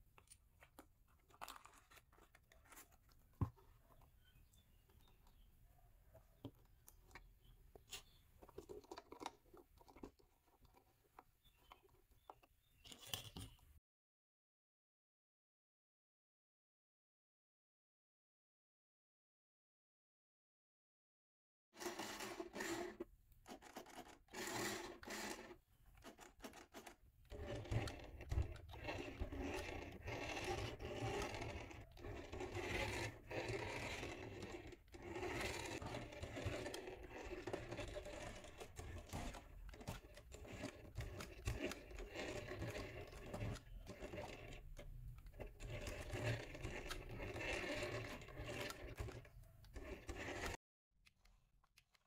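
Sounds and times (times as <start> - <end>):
plastic toy scraping and knocking: 0.7 - 5.5, 6.2 - 13.7, 21.8 - 50.6.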